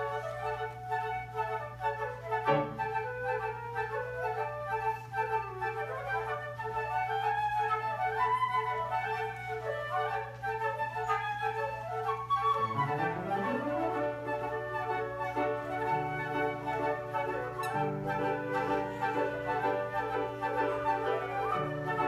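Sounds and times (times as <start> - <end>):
flute ensemble with piano: 0.0 - 22.0.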